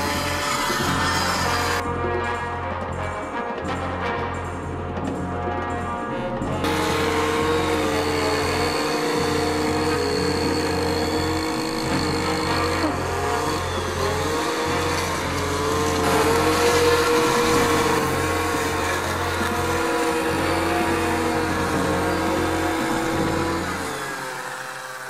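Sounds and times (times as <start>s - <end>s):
brushcutter engine running: 6.6s - 25.0s.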